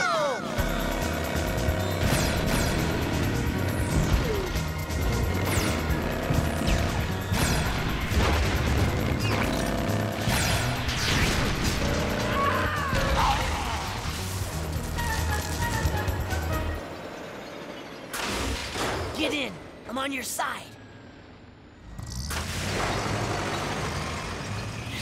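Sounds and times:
action music score: 0.0 - 25.0
energy blast zaps and crashes: 6.6 - 12.4, 22.1 - 25.0.

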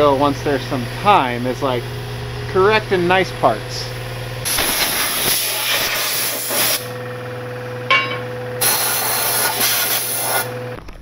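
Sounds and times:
low workshop hum: 0.0 - 11.0
compressed air hissing: 4.5 - 6.9, 8.6 - 10.5.

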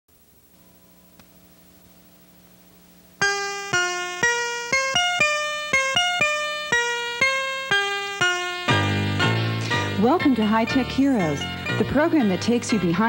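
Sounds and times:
faint steady hum: 0.1 - 13.0
melody of struck ringing notes: 3.2 - 11.8.

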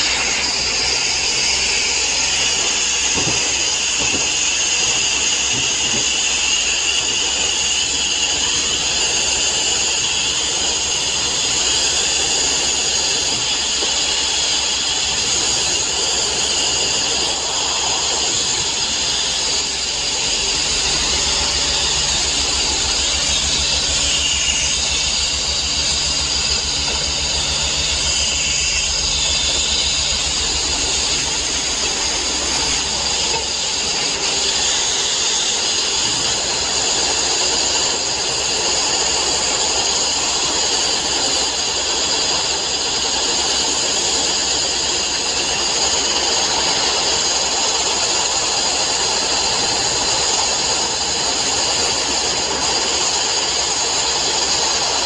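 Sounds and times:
abrasive blasting hiss: 0.0 - 55.0
low rapid throb: 14.1 - 35.6.

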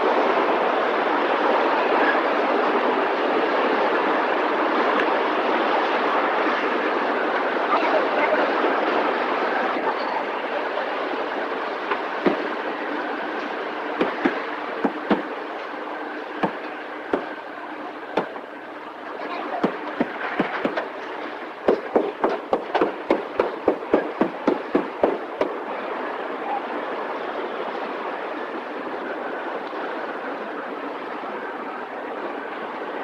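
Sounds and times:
sharp knocks: 12.2 - 12.4, 14.0 - 15.3, 16.4 - 17.4, 18.2 - 18.4, 19.6 - 20.9, 21.7 - 25.5
assembly line mechanical din: 19.6 - 25.6.

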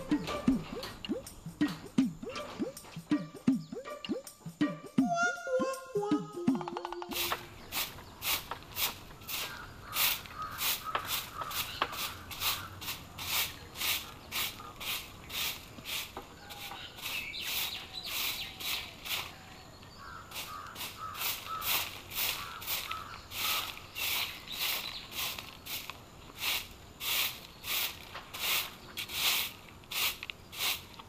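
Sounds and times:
broom sweeping the ground: 0.0 - 5.1, 7.0 - 31.0
faint birds chirping: 0.0 - 5.9, 6.6 - 31.0.

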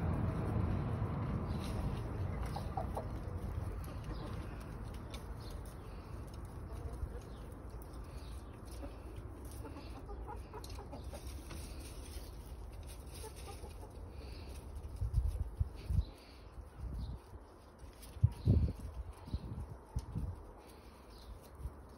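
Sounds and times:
hens clucking: 0.0 - 17.1
low background rumble: 0.0 - 17.6.

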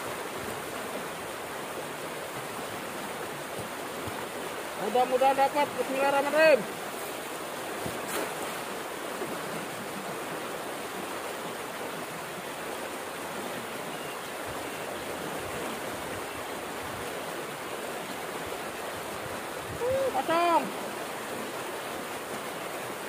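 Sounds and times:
water pouring into creek: 0.0 - 13.8.

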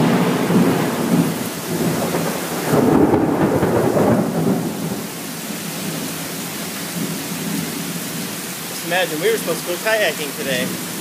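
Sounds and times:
thunder rumbling: 0.0 - 6.0
heavy rain pouring: 0.0 - 11.0.

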